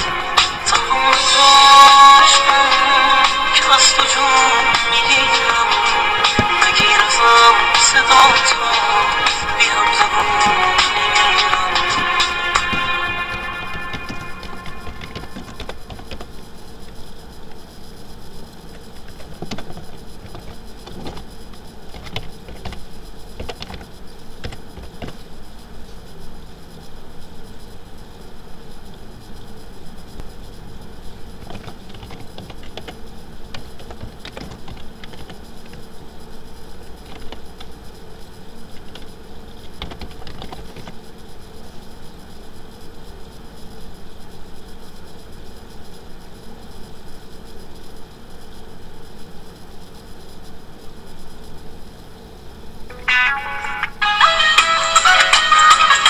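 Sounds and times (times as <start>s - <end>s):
electrical hum and hiss: 0.0s - 56.0s
keyboard typing: 3.6s - 16.3s, 31.4s - 33.0s, 33.6s - 35.8s, 39.7s - 41.0s.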